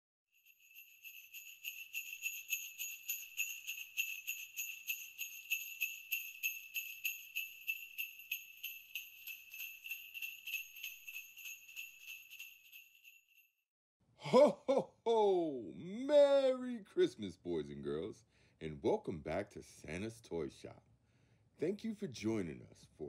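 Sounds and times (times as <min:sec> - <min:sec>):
sleigh bells shaking: 0:00.4 - 0:13.6.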